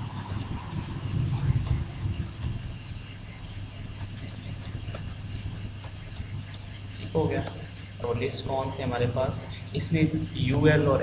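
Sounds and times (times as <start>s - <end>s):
typing on a keyboard: 0.0s - 2.8s, 4.0s - 6.8s
steady low hum: 0.0s - 11.0s.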